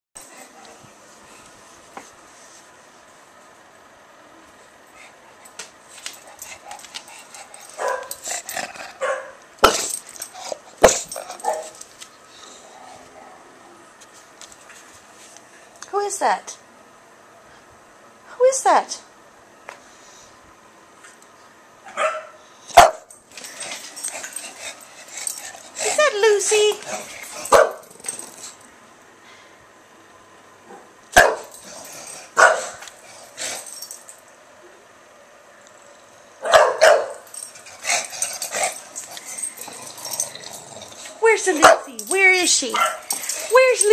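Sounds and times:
puppy barking: 7.8 - 8.1, 9.0 - 9.9, 21.9 - 23.1, 27.4 - 27.8, 30.7 - 31.5, 32.4 - 32.8, 36.4 - 37.3, 42.7 - 43.2.

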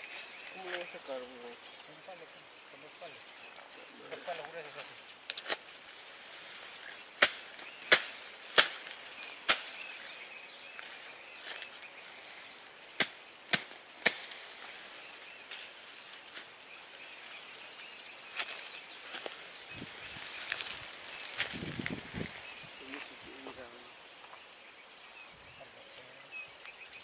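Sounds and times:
sticks snapping: 7.2 - 9.7, 13.0 - 14.4.

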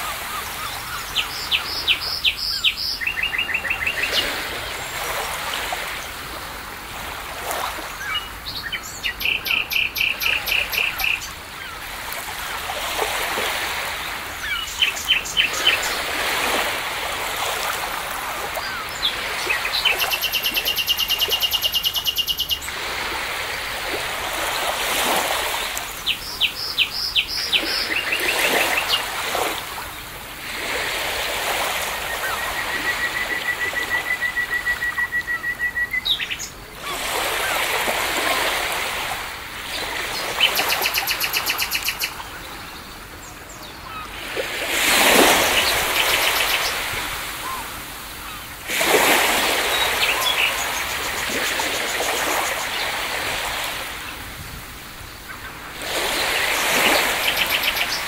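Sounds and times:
waves washing: 0.0 - 58.0
birds calling: 24.3 - 30.0, 30.7 - 54.2, 54.9 - 58.0.

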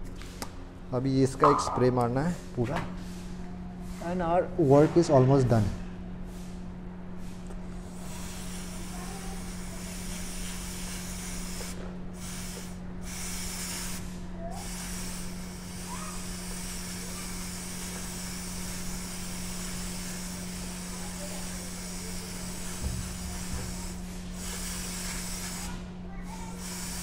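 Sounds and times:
aerosol spray hissing: 7.9 - 25.8, 26.6 - 27.0.

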